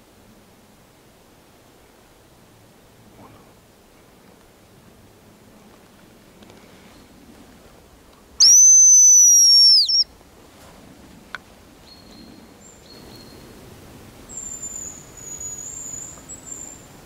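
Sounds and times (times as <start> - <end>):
high thin decoy whistle: 8.4 - 10.1.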